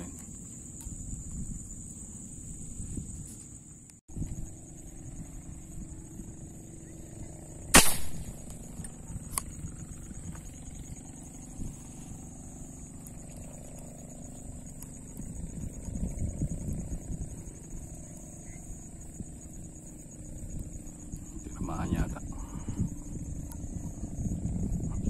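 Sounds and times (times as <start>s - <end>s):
high-pitched whine: 4.1s - 25.0s
spear gun firing snap: 7.7s - 8.6s.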